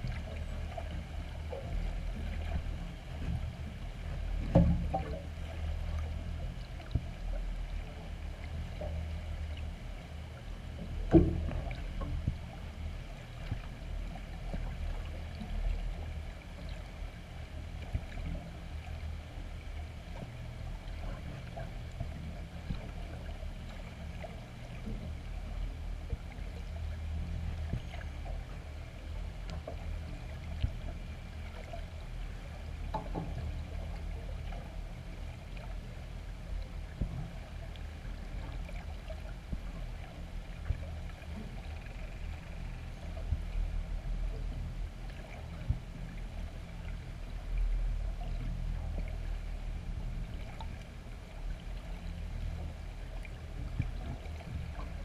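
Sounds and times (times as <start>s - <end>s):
underwater low rumble: 0.0s - 55.0s
faint clicks: 39.6s - 43.6s.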